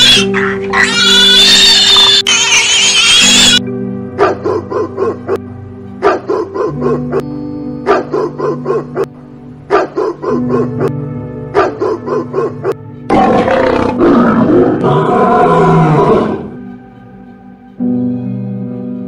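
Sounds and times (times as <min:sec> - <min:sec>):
background music: 0:00.0 - 0:19.0
lion roaring: 0:13.1 - 0:16.6.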